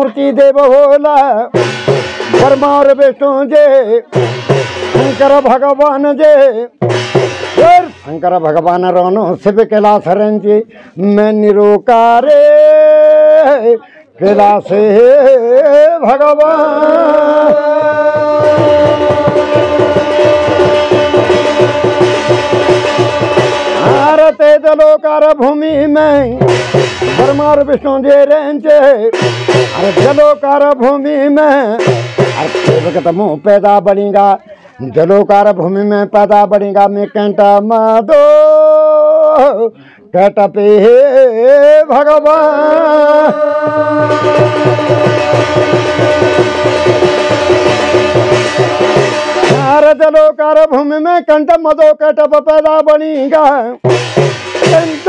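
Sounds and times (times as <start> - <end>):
barrel drum fast beat: 1.4 - 9.2, 14.4 - 34.3, 42.6 - 50.4, 53.7 - 55.0
person singing: 10.4 - 53.9
steady held tone: 17.0 - 24.7, 42.7 - 50.0
fast hand drumming: 17.3 - 24.4, 25.8 - 27.8, 43.2 - 49.9, 53.8 - 55.0
brass plate ringing: 18.0 - 24.4, 43.4 - 49.9.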